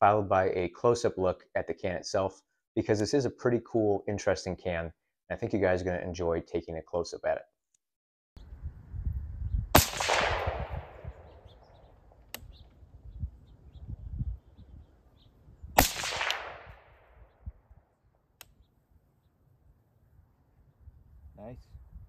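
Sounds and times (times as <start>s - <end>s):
suppressed rifle shots: 9.7s - 11.6s, 15.8s - 17.2s.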